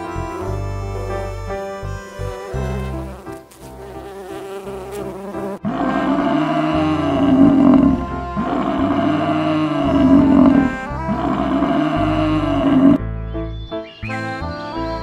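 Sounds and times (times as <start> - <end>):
bee buzzing: 0.0 - 13.0
background music: 0.0 - 15.0
water buffalo grunting: 5.6 - 13.0.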